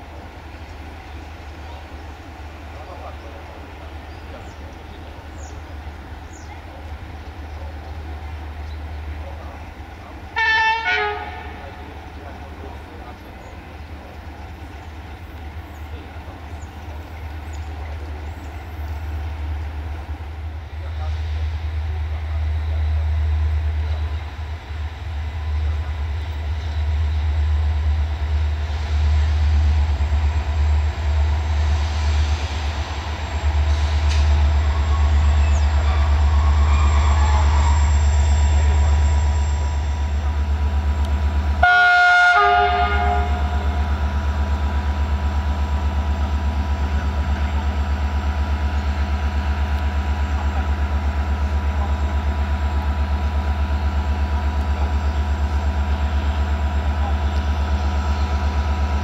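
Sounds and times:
locomotive engine rumbling: 0.0 - 59.0
train horn blast: 10.3 - 11.8, 41.6 - 44.1.

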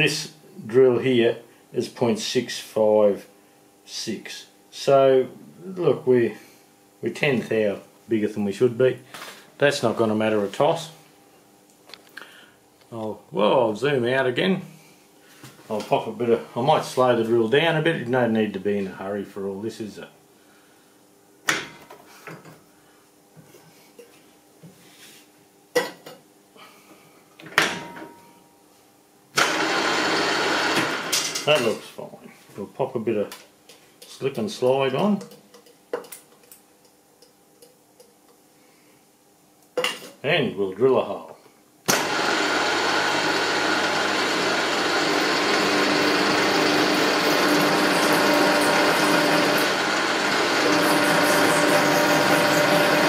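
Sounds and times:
faint steady hum: 0.0 - 29.4, 31.0 - 42.0
milling machine drilling steel: 41.9 - 53.0.

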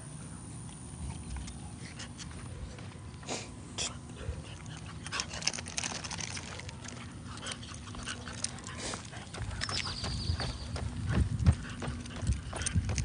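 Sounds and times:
dog claws clicking on concrete: 4.6 - 10.2, 11.4 - 13.0.

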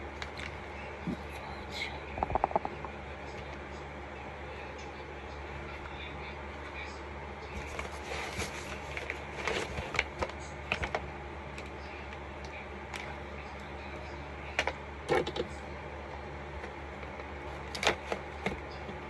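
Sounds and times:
steady low hum: 0.0 - 19.0
cardboard and plastic rustling: 7.6 - 11.0.

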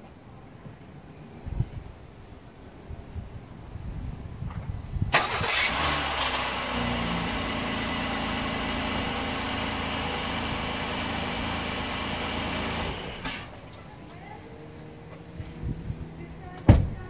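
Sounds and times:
car engine starting and idling: 5.1 - 17.0.

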